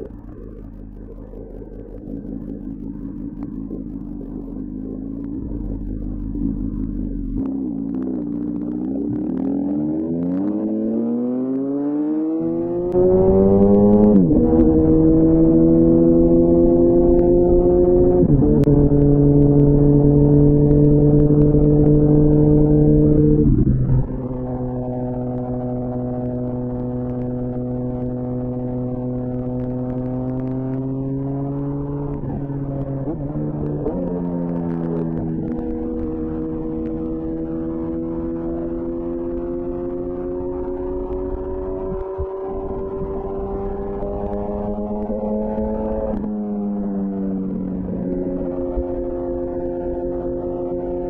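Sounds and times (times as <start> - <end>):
motorcycle engine accelerating: 0.0 - 51.0
wind noise: 12.5 - 51.0.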